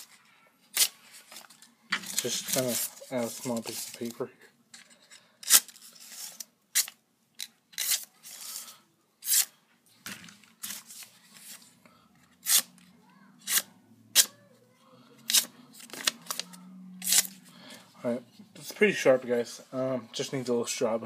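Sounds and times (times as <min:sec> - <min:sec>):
knife slicing paper: 0:07.8 - 0:08.6, 0:09.2 - 0:09.5.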